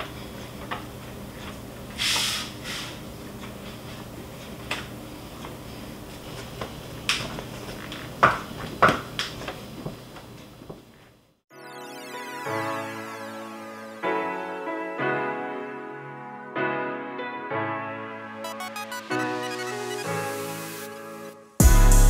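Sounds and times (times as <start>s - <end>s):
short hiss: 2.0s - 3.0s.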